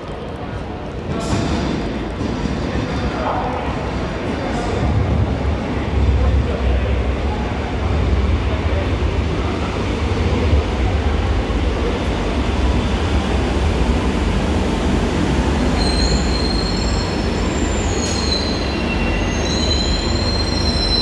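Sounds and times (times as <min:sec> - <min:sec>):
metro train rumbling: 0:00.0 - 0:21.0
high brake squeals: 0:15.8 - 0:21.0.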